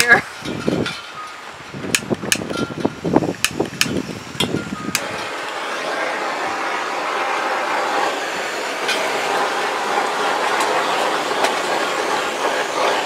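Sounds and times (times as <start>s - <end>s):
wind on microphone: 0.0s - 6.9s
gas torch flame hissing: 0.0s - 13.0s
sharp clicks: 1.9s - 2.6s, 3.4s - 5.6s.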